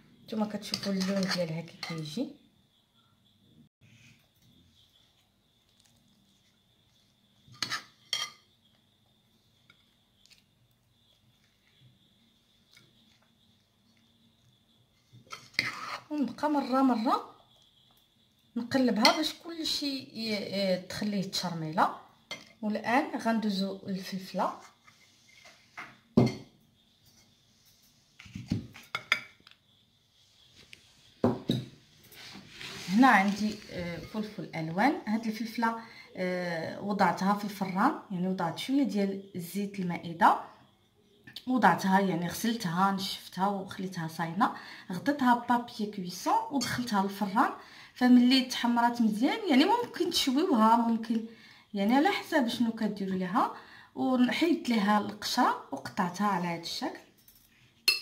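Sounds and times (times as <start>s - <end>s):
metal spoon clinking bowl: 0.6s - 2.1s, 57.2s - 58.0s
bowl knocking on a table: 26.2s - 26.5s.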